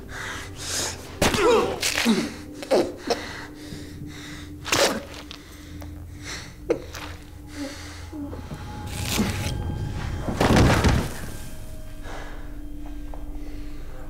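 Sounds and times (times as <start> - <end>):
low steady hum: 0.0 - 14.0
men gasping and grunting: 0.1 - 8.9.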